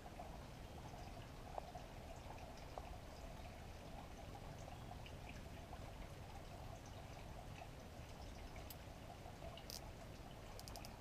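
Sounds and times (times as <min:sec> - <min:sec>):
faint background hiss: 0:00.0 - 0:11.0
small handling clicks: 0:10.5 - 0:11.0.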